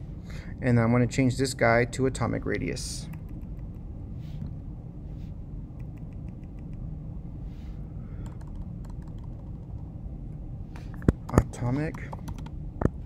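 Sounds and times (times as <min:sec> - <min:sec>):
steady low hum: 0:00.0 - 0:13.0
laptop keyboard typing: 0:08.2 - 0:09.8, 0:11.3 - 0:12.6.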